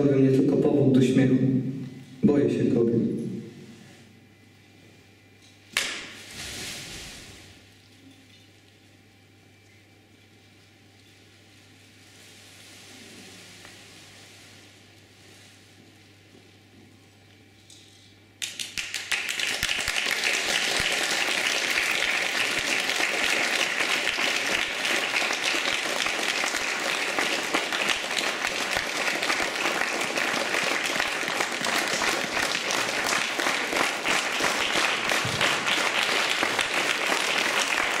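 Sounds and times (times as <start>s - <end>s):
audience applause: 18.4s - 38.0s.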